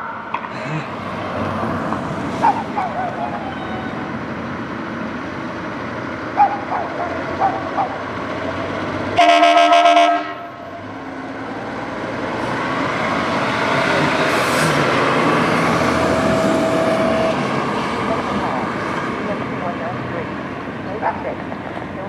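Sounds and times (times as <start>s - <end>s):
diesel truck engine driving by: 0.1s - 22.0s
fire engine air horn blast: 9.2s - 10.6s.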